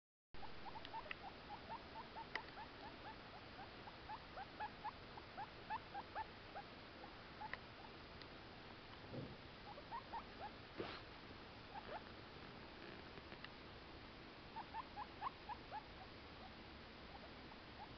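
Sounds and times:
guinea pig squeaking: 0.4 - 7.9, 9.6 - 11.0, 11.7 - 12.1, 14.5 - 17.9
brushing rustles: 10.8 - 11.1.

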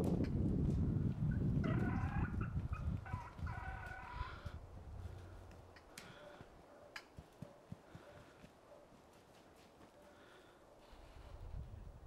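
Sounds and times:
wild turkey gobbling: 1.6 - 4.5.

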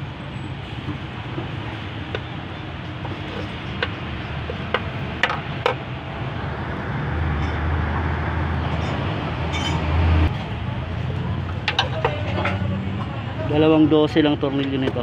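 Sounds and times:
hand tools clinking on metal: 8.8 - 9.9.

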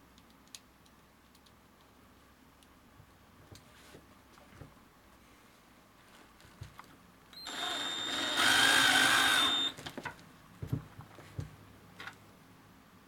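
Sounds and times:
cordless drill whining: 7.4 - 9.8.

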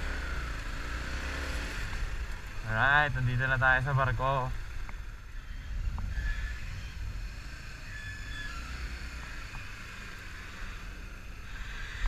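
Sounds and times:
motorcycle engine rumble: 0.0 - 12.0
faint high squeals: 5.1 - 12.0.

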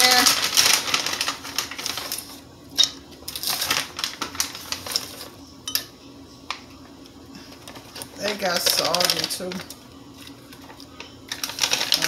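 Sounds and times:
plastic bag rustling: 0.0 - 2.5, 3.3 - 5.4, 7.4 - 12.0.

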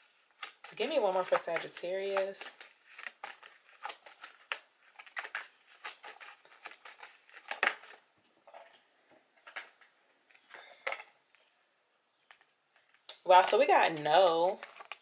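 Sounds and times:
cards being shuffled: 0.0 - 8.0, 14.4 - 15.0.

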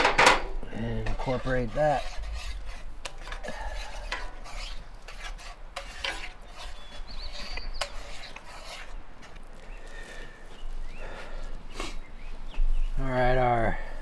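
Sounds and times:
spoon scraping a skillet: 0.0 - 10.7.

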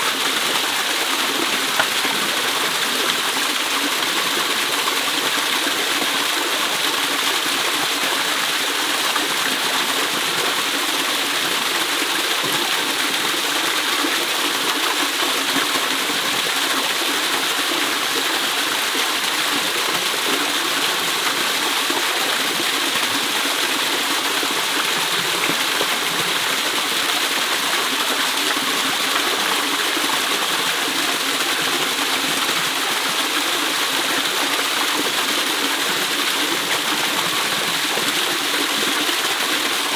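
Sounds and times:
waterfall pouring into a pool: 0.0 - 39.9.

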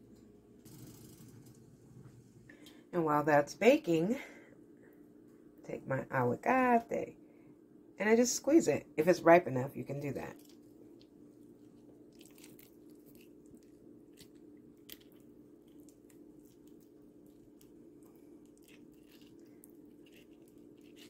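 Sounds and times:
steady low hum: 0.0 - 21.0
avocado squishing: 10.3 - 21.0.

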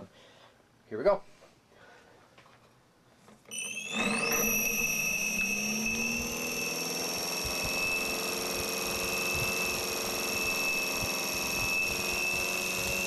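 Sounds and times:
high whine of converter: 3.5 - 13.0.

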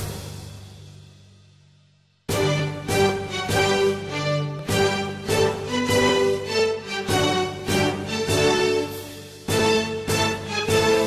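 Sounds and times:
instrumental music with accented beats: 2.3 - 11.0.

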